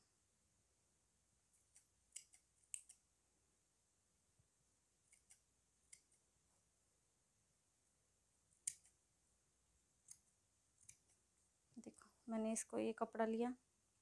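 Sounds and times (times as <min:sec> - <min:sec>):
scissors snipping cloth: 0:01.6 - 0:03.0, 0:05.1 - 0:06.2, 0:08.6 - 0:09.0, 0:10.0 - 0:11.2.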